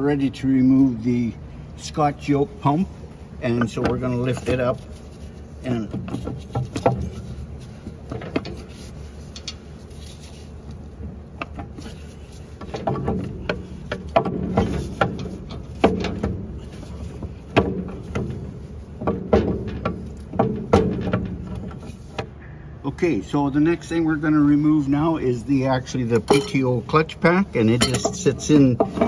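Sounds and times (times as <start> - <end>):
metal knocks and clunks: 5.7 - 8.7, 12.6 - 22.4, 27.7 - 29.0.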